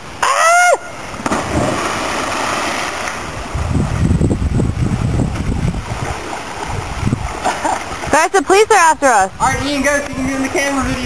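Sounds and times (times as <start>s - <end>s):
river water splashing: 0.0s - 11.0s
wind buffeting microphone: 3.2s - 11.0s.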